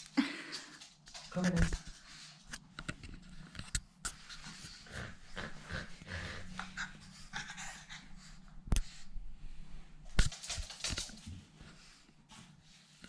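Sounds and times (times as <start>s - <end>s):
puppy panting: 4.4s - 8.6s.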